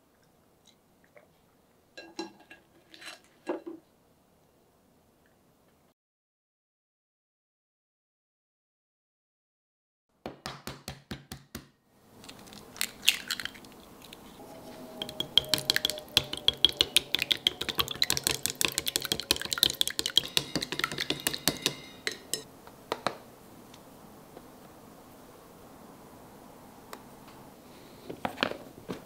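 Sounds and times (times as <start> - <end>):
utensils clinking against dishware: 15.0 - 22.5.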